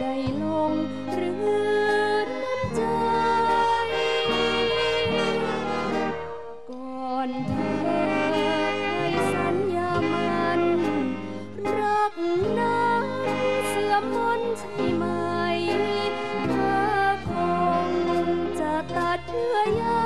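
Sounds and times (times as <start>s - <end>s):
big band brass chords: 3.5s - 6.6s, 7.5s - 19.3s.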